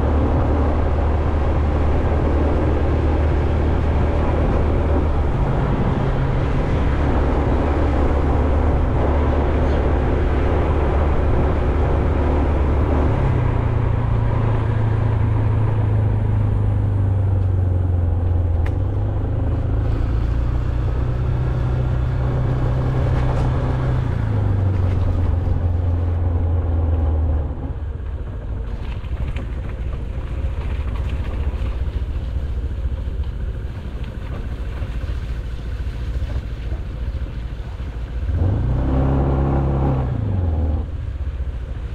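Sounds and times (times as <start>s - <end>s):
road noise: 0.0s - 41.9s
vehicle engine hum: 0.0s - 41.9s
wind noise: 0.0s - 41.9s.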